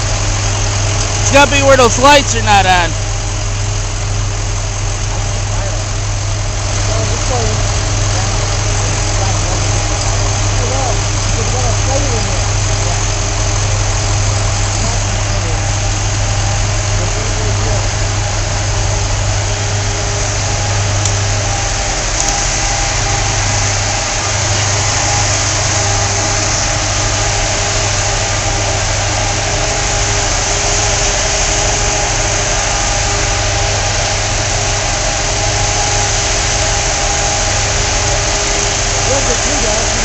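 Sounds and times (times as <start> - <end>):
truck engines idling: 0.0 - 40.0.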